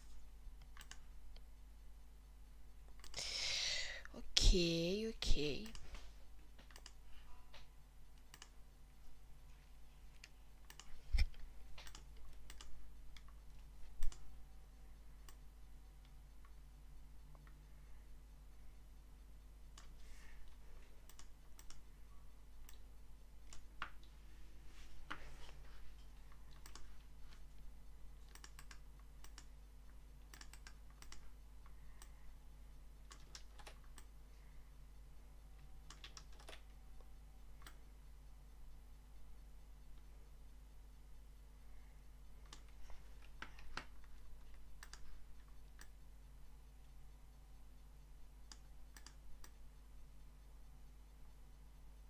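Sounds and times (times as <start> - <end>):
faint low hum: 0.0 - 52.0
mouse and keyboard clicks: 0.6 - 1.5, 6.6 - 8.6, 10.1 - 14.3, 26.4 - 27.0, 28.2 - 29.5, 30.3 - 31.3, 33.0 - 34.1, 35.8 - 36.8, 42.4 - 46.0, 48.4 - 49.6.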